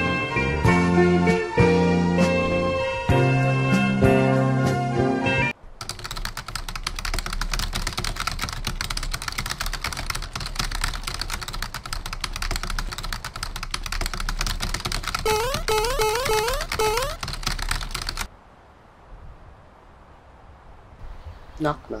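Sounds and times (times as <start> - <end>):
fast typing on keyboard: 5.8 - 18.3
short rising chirps: 15.3 - 17.2.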